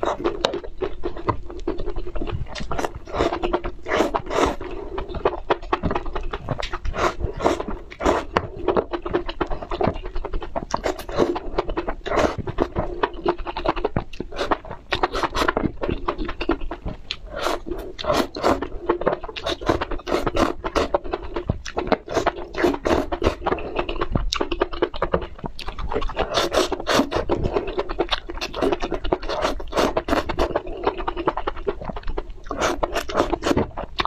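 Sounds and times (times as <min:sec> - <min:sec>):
wet chewing and mouth smacks: 0:00.0 - 0:34.0
slurping food: 0:01.7 - 0:05.3, 0:06.6 - 0:08.6, 0:14.3 - 0:15.6, 0:17.2 - 0:18.8, 0:19.4 - 0:21.0, 0:21.9 - 0:24.0, 0:26.0 - 0:31.4, 0:32.4 - 0:33.7.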